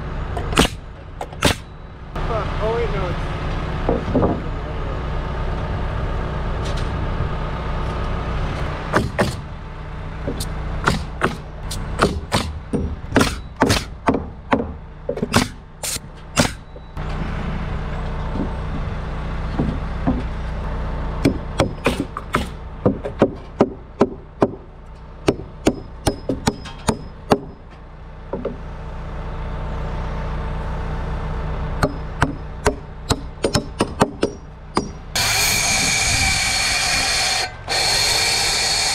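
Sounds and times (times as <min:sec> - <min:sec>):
engine hum: 0:00.0 - 0:38.9
hammering nails into wood: 0:08.9 - 0:09.4, 0:10.4 - 0:11.4, 0:12.0 - 0:16.6, 0:21.2 - 0:27.6, 0:31.8 - 0:35.0.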